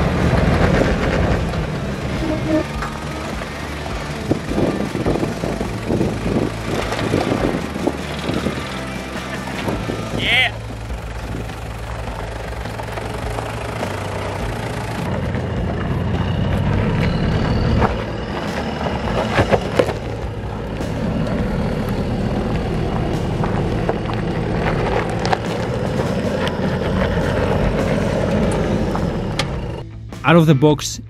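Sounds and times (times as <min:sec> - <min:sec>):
engine running under load: 0:00.0 - 0:30.2.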